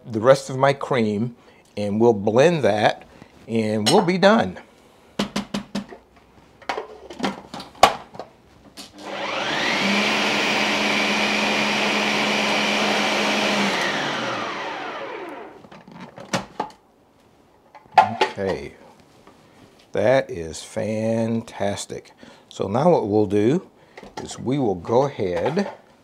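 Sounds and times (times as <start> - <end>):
food processor motor whining: 8.9 - 15.6.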